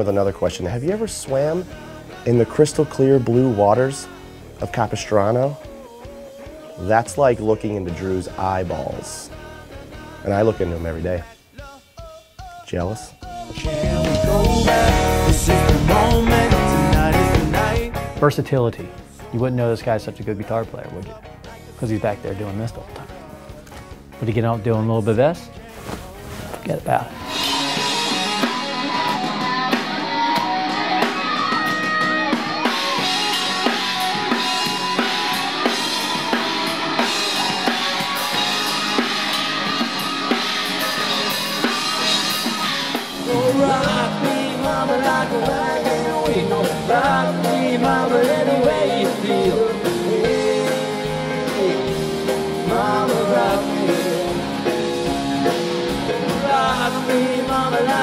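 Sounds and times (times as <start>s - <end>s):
drum kit: 0.0s - 58.0s
rock band music with singing: 0.0s - 58.0s
electric guitar: 13.4s - 18.2s, 27.1s - 58.0s
heavy bass: 13.4s - 19.4s, 26.9s - 58.0s.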